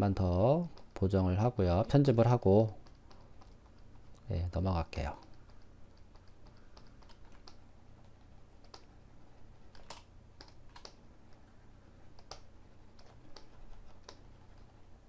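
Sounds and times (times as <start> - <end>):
low steady hum: 0.0 - 15.0
computer keys clicking: 2.7 - 4.3, 5.1 - 8.9, 9.6 - 11.4, 12.1 - 14.8.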